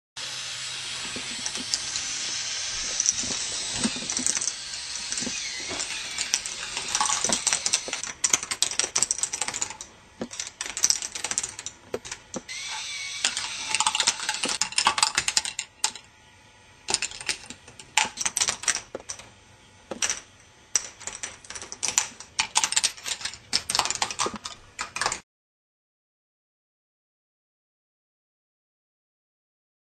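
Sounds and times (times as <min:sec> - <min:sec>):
balls rattling along plastic track: 0:00.8 - 0:16.1, 0:16.9 - 0:25.2.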